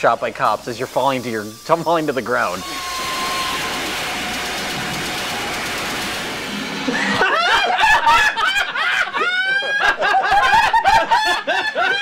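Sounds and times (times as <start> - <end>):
steady hiss: 0.0 - 7.1
people cackling with laughter: 6.8 - 12.0.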